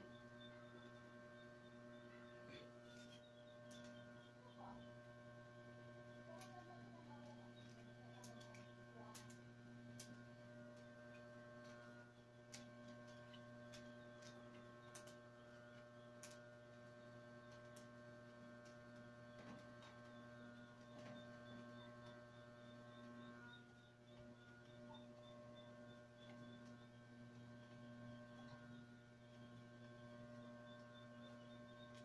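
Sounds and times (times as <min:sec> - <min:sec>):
faint electrical hum: 0:00.0 - 0:32.0
wicker weaving clicks: 0:06.3 - 0:16.8.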